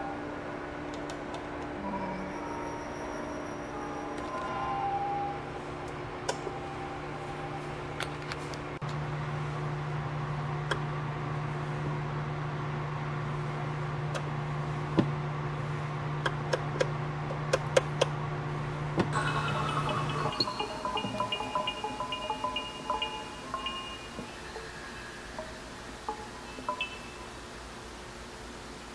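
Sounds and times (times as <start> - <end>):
low mechanical hum: 0.0 - 28.9
soft music with chime-like notes: 19.2 - 27.6.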